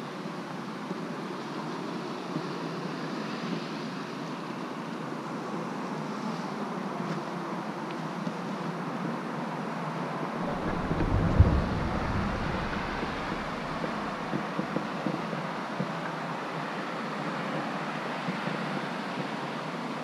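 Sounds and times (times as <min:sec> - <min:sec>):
wind buffeting microphone: 0:10.4 - 0:14.4.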